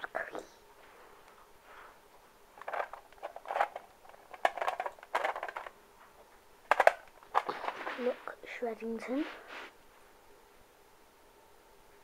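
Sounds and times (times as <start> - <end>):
plastic toys rustling and clicking: 2.6 - 5.8, 6.7 - 8.4.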